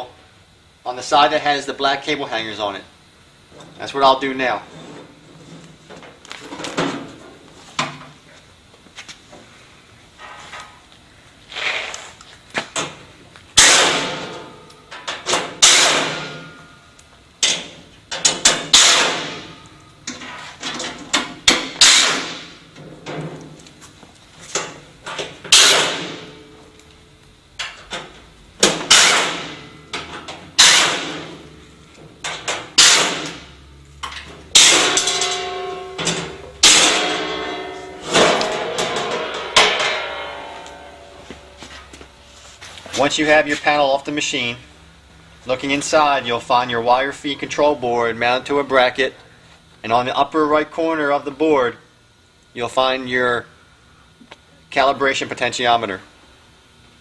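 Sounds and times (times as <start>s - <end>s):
sheet metal panel ringing: 13.6s - 16.8s, 18.2s - 19.6s, 25.5s - 26.5s, 28.7s - 31.4s, 34.5s - 41.9s
metallic knocks clanks and scrapes: 17.4s - 23.5s, 34.0s - 43.1s.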